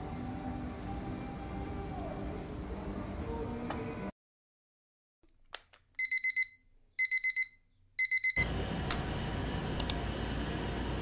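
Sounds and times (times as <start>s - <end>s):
alarm clock beeping: 6.0s - 8.5s
click: 9.8s - 10.0s.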